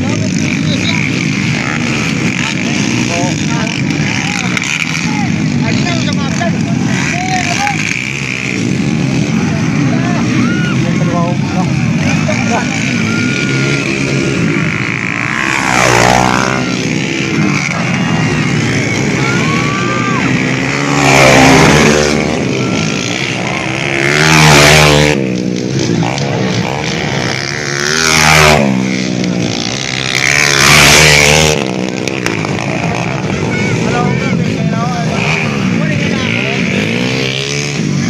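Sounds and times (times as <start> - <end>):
motocross bikes racing past: 0.0 - 38.0.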